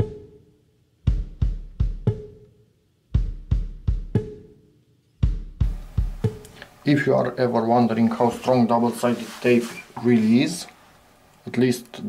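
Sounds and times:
drum kit beat: 0.0s - 2.5s, 3.1s - 4.6s, 5.2s - 10.6s.

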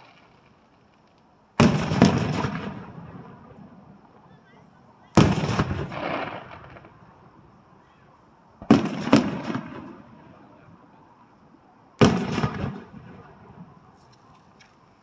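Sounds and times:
firework shells bursting: 0.0s - 3.6s, 5.2s - 7.1s, 8.6s - 10.2s, 12.0s - 15.0s.

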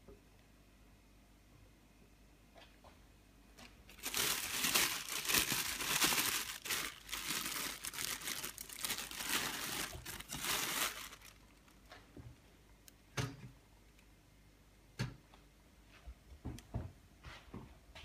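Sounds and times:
plastic bag crinkling: 3.9s - 12.0s.

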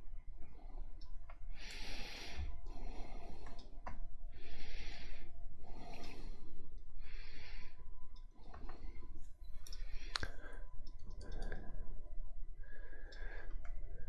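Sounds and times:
person breathing: 0.4s - 14.0s
computer mouse clicks: 3.4s - 4.1s, 8.1s - 11.7s, 13.0s - 13.8s.

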